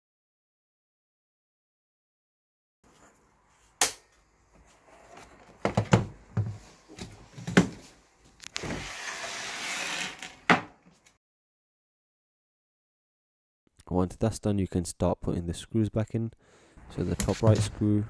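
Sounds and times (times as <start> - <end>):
rustling scrape: 8.6 - 10.4.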